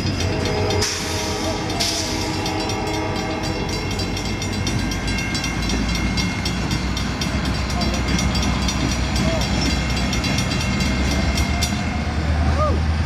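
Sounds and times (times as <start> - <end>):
freight train rumble: 0.0 - 13.0.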